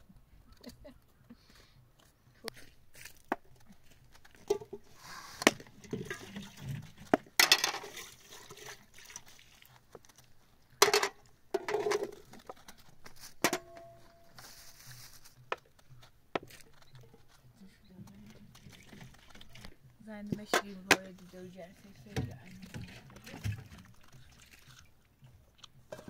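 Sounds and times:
dishes and utensils clinking: 10.8s - 12.2s
rustling noise: 12.1s - 17.5s.

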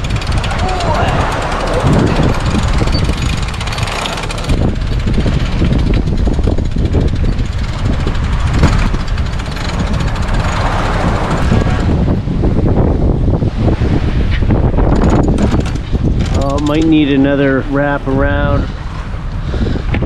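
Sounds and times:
winch pawls clicking: 0.0s - 11.6s, 14.9s - 17.2s
heavy wind noise on microphone: 0.0s - 20.0s.

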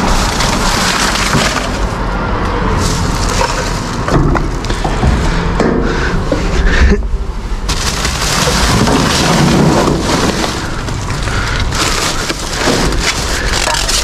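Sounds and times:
plastic bags crinkling: 0.0s - 2.1s, 2.8s - 4.7s, 7.7s - 14.0s.

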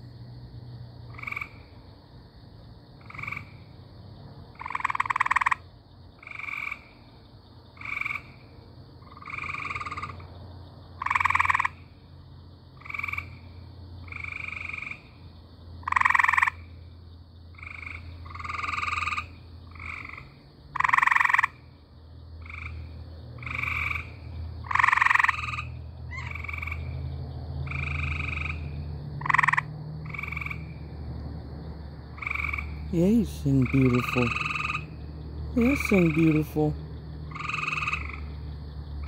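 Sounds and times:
frog trilling calls: 1.1s - 1.7s, 3.0s - 3.6s, 4.6s - 7.1s, 7.8s - 10.4s, 11.0s - 11.9s, 12.8s - 15.1s, 15.8s - 16.8s, 17.5s - 21.6s, 22.4s - 30.8s, 32.1s - 39.0s.

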